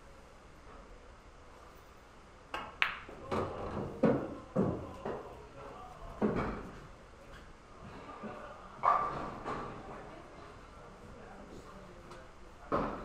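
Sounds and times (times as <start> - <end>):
cue striking ball: 2.5 - 3.5.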